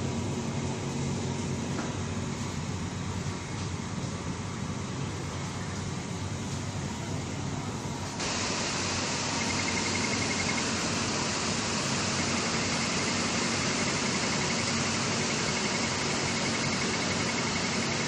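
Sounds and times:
conveyor hiss and hum: 0.0s - 18.0s
rapid high-pitched alarm beeps: 8.2s - 18.0s.

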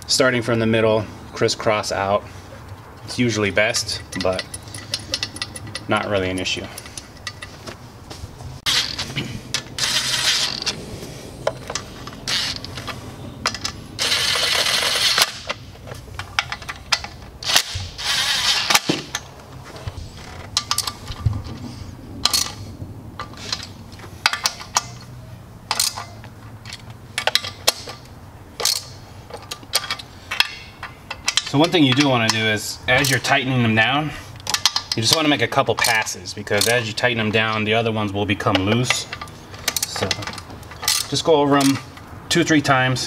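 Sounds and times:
cordless driver running bolts: 3.7s - 7.5s, 8.7s - 10.8s, 11.5s - 19.3s, 34.4s - 42.0s.

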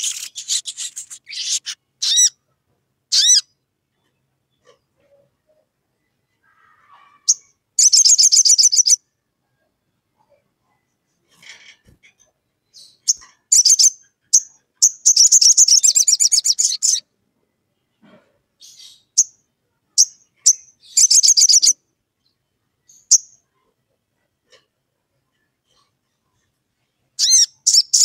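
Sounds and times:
bird rattling trills: 0.0s - 2.3s
bird chirps: 0.0s - 2.4s, 3.1s - 4.7s, 7.3s - 9.0s, 12.6s - 17.0s, 20.0s - 23.4s, 27.2s - 28.0s.

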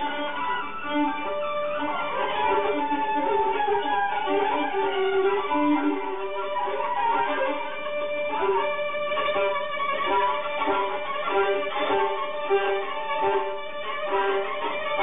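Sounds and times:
solo violin: 0.0s - 15.0s.

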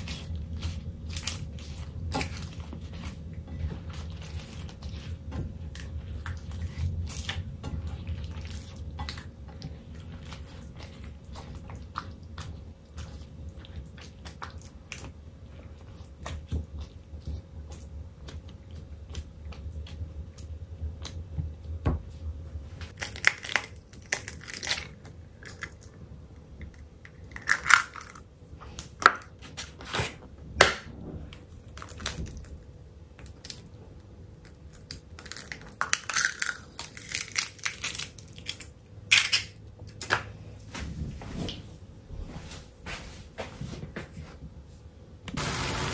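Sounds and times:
eggshells cracking: 23.0s - 26.0s, 26.6s - 28.3s, 34.4s - 40.2s.

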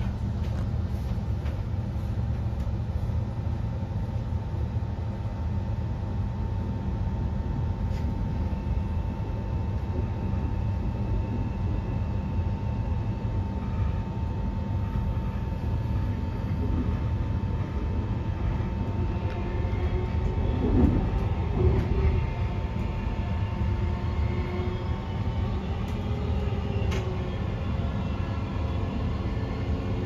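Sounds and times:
steady train whine: 0.0s - 30.0s
train wheels rumbling: 13.6s - 30.0s.

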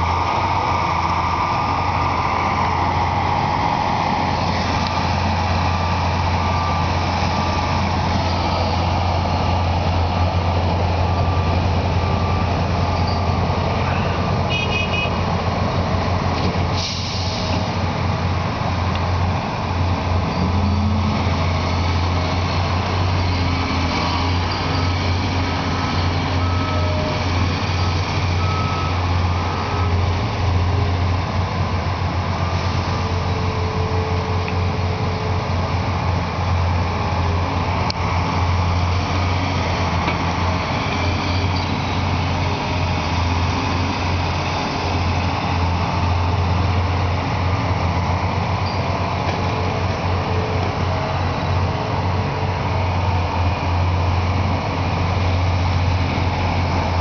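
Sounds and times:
diesel excavator drone: 0.0s - 57.0s
faint reversing beeper: 5.0s - 15.2s, 20.2s - 30.2s, 48.6s - 49.2s.

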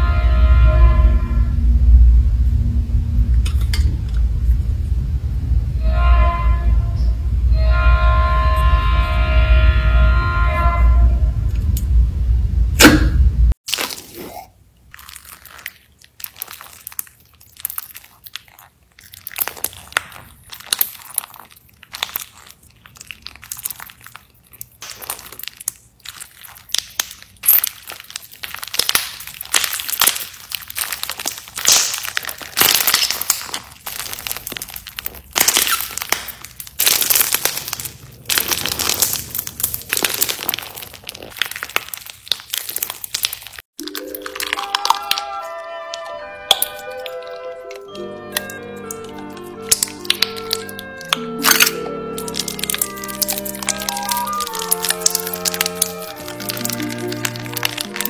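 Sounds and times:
bead slime crackling and crunching: 13.6s - 58.0s.

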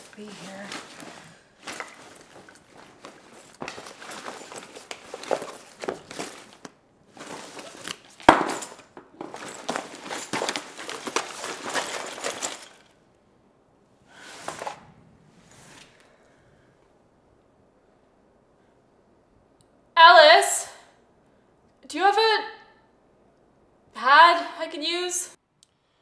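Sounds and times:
rummaging through a backpack: 0.0s - 13.0s.

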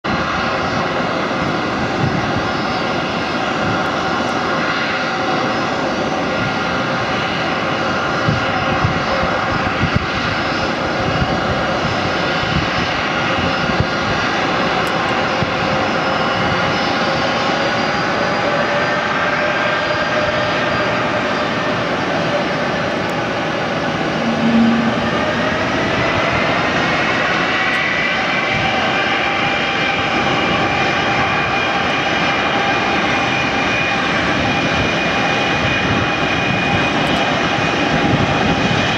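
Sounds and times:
jet engines idling: 0.1s - 38.9s
brief low tone: 24.0s - 25.7s.

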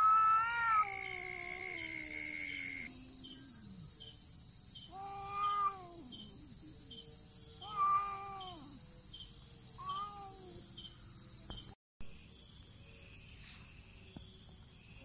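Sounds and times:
cats yowling: 0.0s - 3.9s, 4.9s - 7.0s, 7.6s - 8.8s, 9.8s - 10.7s
crickets chirping: 0.0s - 15.0s.

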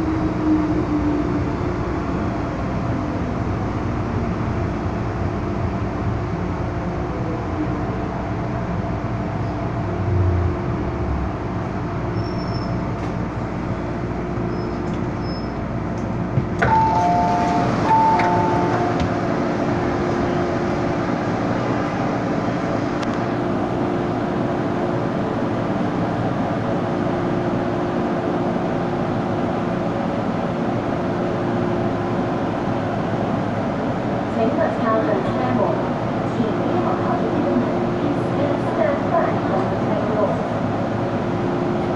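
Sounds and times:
train hum: 0.0s - 41.9s
train pulling to a stop: 0.0s - 41.9s
two-note door chime: 16.6s - 19.0s.

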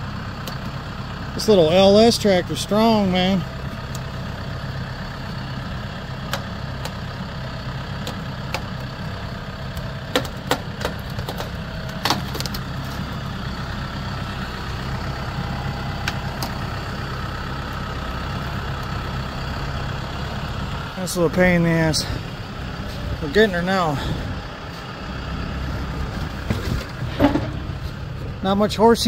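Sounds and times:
engine running: 0.0s - 29.0s
metallic knocks and clanks: 26.4s - 28.0s.

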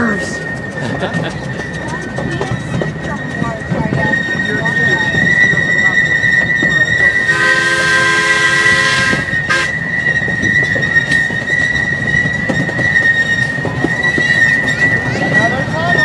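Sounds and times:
high-pitched wheel squeal: 0.0s - 16.0s
steam locomotive whistle: 4.0s - 12.3s.

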